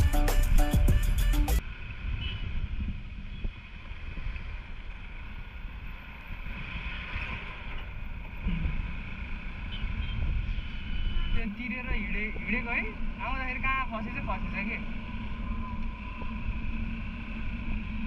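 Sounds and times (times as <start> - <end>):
wind on microphone: 1.8 - 4.7.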